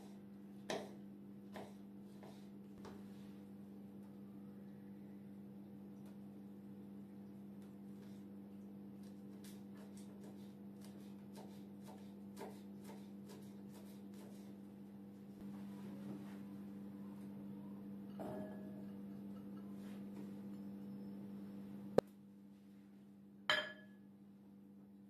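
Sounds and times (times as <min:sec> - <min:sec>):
low hum: 0:02.9 - 0:07.9, 0:15.4 - 0:22.0
knife chopping on wooden board: 0:09.3 - 0:14.5.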